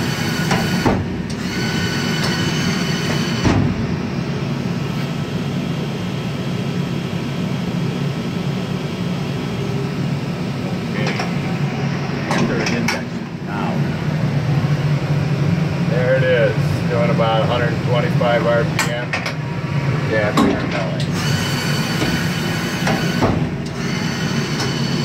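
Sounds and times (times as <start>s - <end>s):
high machine whine: 0.0s - 25.0s
machine hum: 0.0s - 25.0s.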